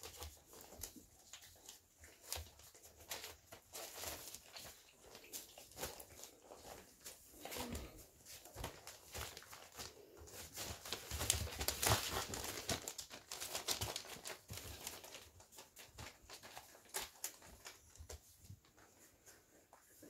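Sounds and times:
newspaper crinkling under paws: 0.0 - 20.0.

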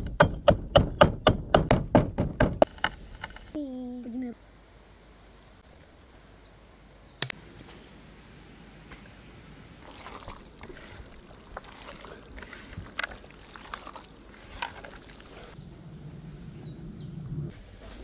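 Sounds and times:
hands squelching raw meat: 9.8 - 15.6.

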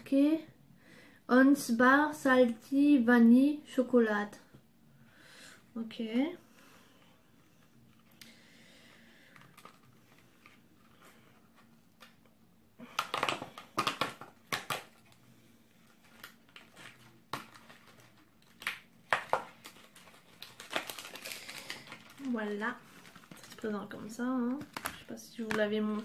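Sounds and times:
plastic wrapper crinkling: 7.8 - 26.0.

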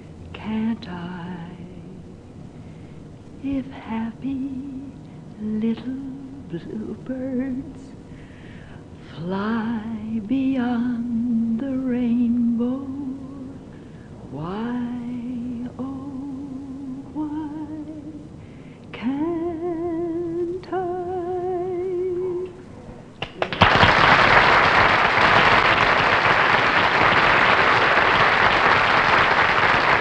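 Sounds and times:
woman singing a slow ballad: 0.3 - 2.1, 3.4 - 8.1, 9.0 - 18.3, 18.9 - 22.7
audience applauding: 23.2 - 30.0.

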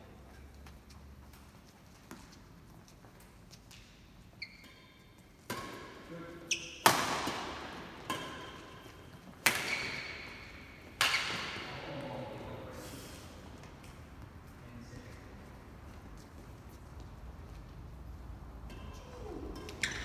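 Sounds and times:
shoes squeaking on court floor: 0.1 - 12.0, 19.1 - 20.0
rackets striking shuttlecock: 5.4 - 11.8.

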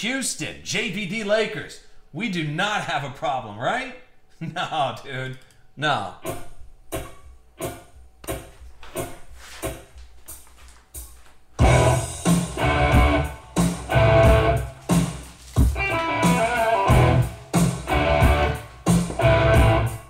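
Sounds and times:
background music with steady beat: 6.2 - 20.0.

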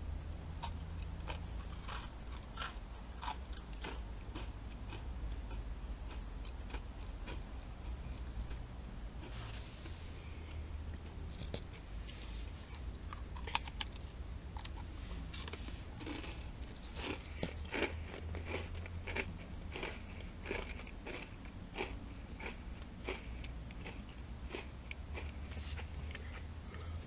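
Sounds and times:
low steady hum: 0.0 - 27.0
chewing crunchy biscuit: 0.6 - 10.6, 11.2 - 27.0.

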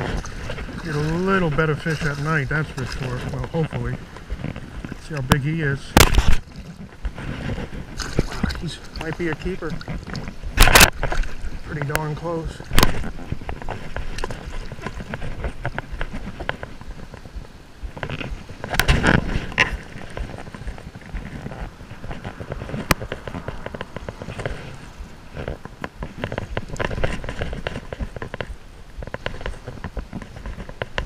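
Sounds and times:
water splashing and dripping: 0.0 - 17.2.

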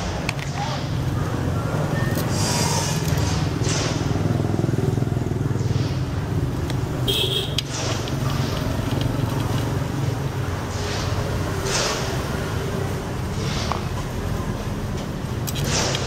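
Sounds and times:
motorbike engines rumbling: 0.0 - 16.0.

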